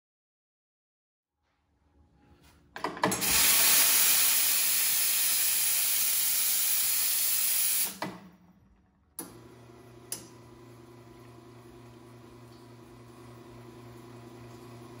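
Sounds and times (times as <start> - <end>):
steam wand hissing: 3.1 - 8.0
pump motor humming: 9.2 - 15.0.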